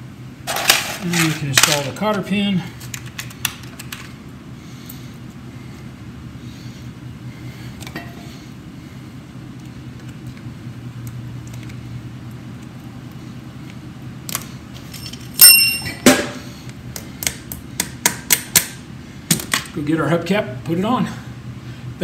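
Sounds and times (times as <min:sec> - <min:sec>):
low background hum: 0:00.0 - 0:22.0
ringing metal clank: 0:15.0 - 0:16.4.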